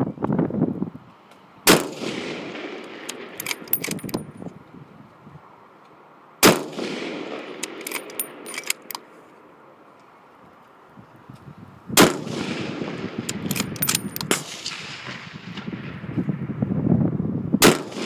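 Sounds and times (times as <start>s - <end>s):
rifle bolt clicks: 3.0s - 4.3s, 7.6s - 9.1s, 13.3s - 14.4s
rifle shots with echo: 6.4s - 8.9s, 12.0s - 15.2s, 17.6s - 18.0s.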